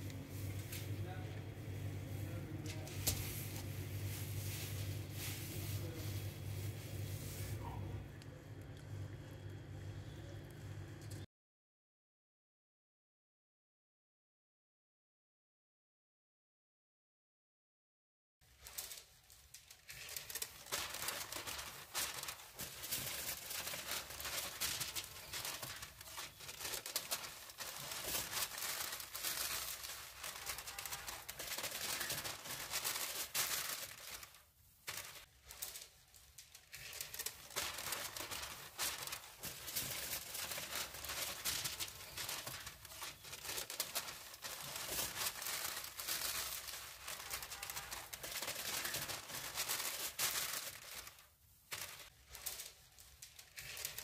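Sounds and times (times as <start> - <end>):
aluminium foil crinkling: 2.2 - 7.8, 18.4 - 54.0.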